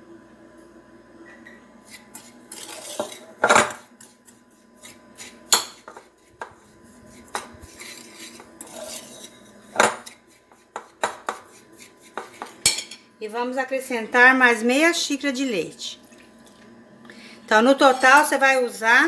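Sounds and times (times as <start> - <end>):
metal spoon scraping glass bowl: 1.9 - 3.4, 4.0 - 13.0.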